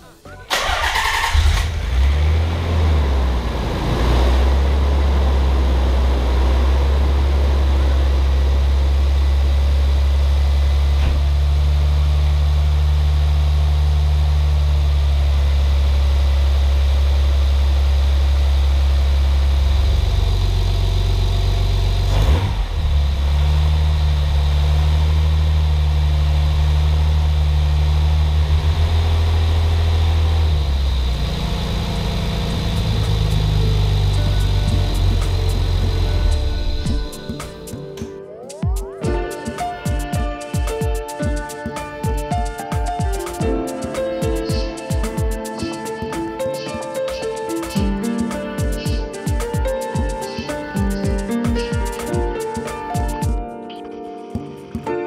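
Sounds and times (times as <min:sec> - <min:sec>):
car engine idling: 0:00.5 - 0:37.8.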